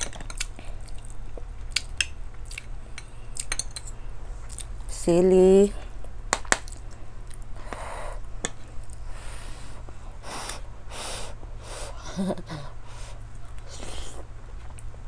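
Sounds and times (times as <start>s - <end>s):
spoon clinking on a plate: 3.0s - 3.9s
loud breathing while chewing: 7.4s - 8.3s, 8.9s - 14.3s.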